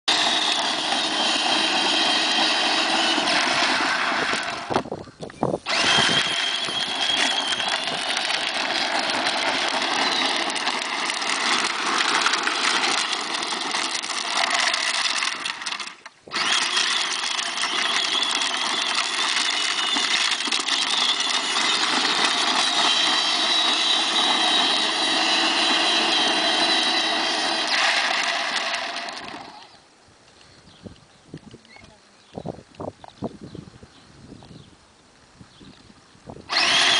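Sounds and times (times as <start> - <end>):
plastic wheels on road: 0.0 - 36.9
electric motor whine: 0.1 - 4.9, 5.6 - 29.9, 36.5 - 36.9.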